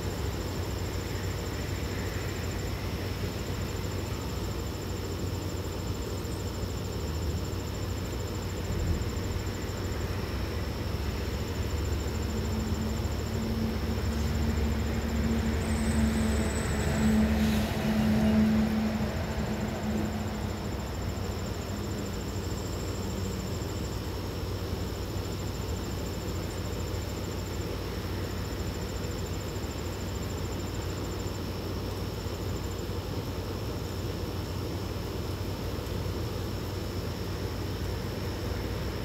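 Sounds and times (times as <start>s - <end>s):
high insect trill: 0.0s - 39.0s
low hum: 8.5s - 24.3s.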